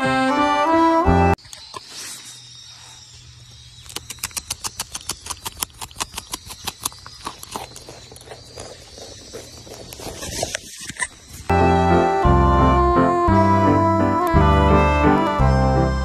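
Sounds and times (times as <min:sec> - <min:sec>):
beaver gnawing a carrot: 0:03.8 - 0:11.5.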